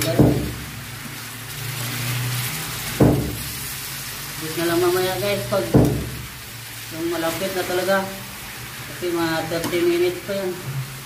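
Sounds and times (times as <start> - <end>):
food sizzling in a wok: 0.0 - 11.0
sharp knocks: 3.0 - 3.4.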